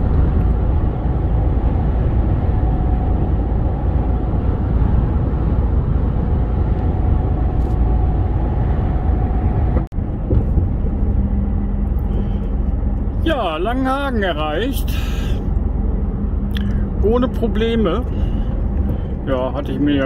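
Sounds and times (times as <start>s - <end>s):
truck engine and road noise: 0.0s - 20.0s.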